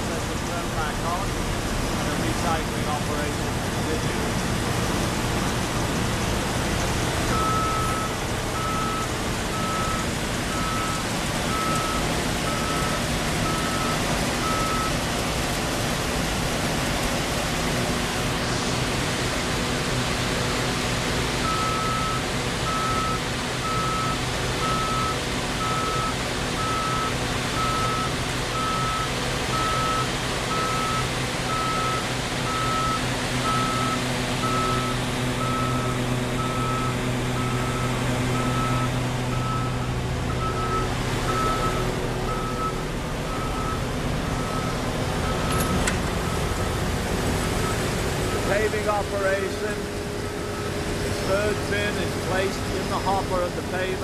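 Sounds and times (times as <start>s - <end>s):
heavy diesel machinery running: 0.0s - 54.0s
reversing alarm beeping: 7.3s - 15.0s, 21.4s - 46.8s, 50.2s - 51.5s.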